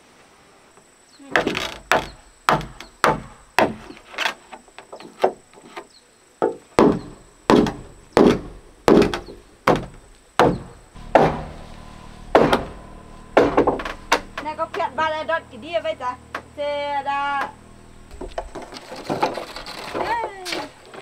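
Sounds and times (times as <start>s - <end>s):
hammer knocking on wooden beam: 1.9s - 3.9s, 6.4s - 11.6s.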